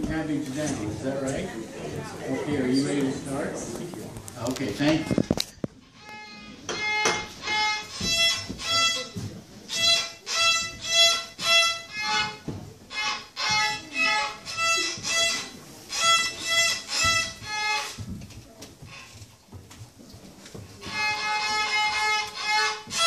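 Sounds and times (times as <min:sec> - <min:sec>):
violin playing simple tune: 0:05.9 - 0:18.0, 0:20.8 - 0:23.0.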